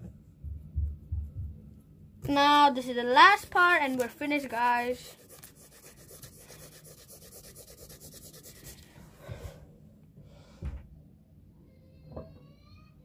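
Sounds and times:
pencil shading on paper: 0:03.8 - 0:08.8.

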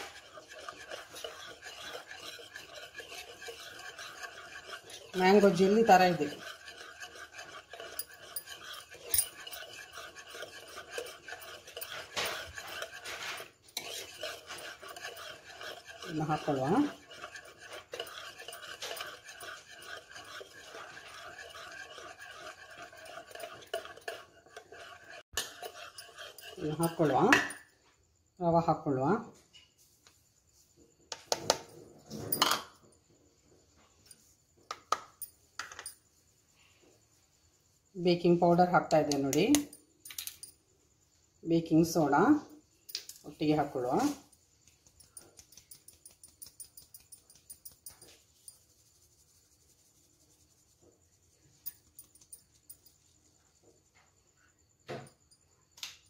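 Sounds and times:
utensil scraping plastic bowl: 0:00.0 - 0:27.6.

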